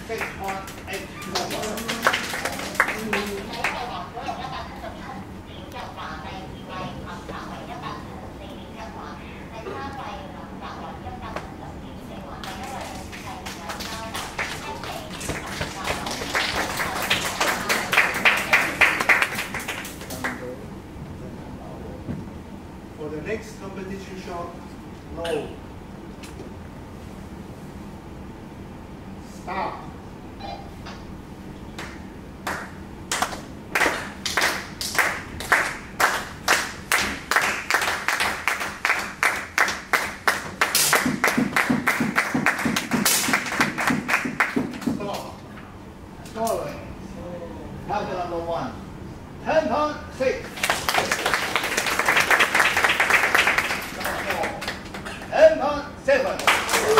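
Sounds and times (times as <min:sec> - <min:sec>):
audience clapping: 0:00.0 - 0:03.9, 0:12.4 - 0:20.6, 0:31.8 - 0:45.3, 0:50.5 - 0:55.3, 0:56.2 - 0:56.9
heavier deeper claps: 0:31.8 - 0:45.2.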